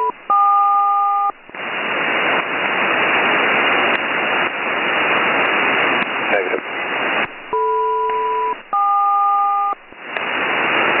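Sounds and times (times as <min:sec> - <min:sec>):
two steady radio tones: 0:00.0 - 0:01.5, 0:06.0 - 0:10.3
radio channel hiss: 0:00.0 - 0:11.0.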